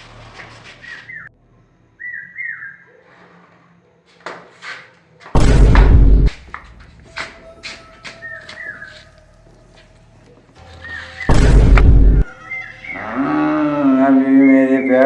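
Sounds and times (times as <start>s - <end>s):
high whistled chirps: 0.8s - 1.3s, 2.0s - 2.9s, 7.4s - 9.1s, 10.7s - 11.4s, 12.2s - 13.4s
loud heavy boom: 5.4s - 6.4s, 11.3s - 12.2s.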